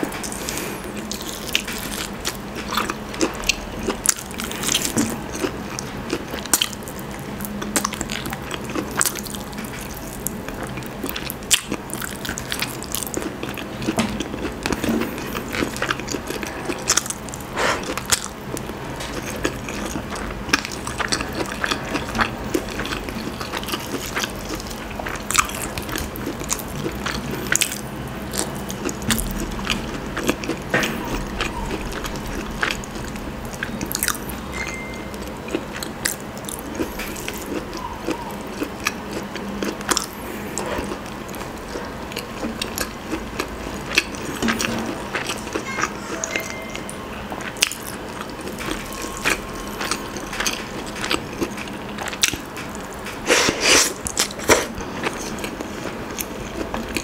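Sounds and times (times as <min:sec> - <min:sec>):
person chewing: 0:00.0 - 0:57.0.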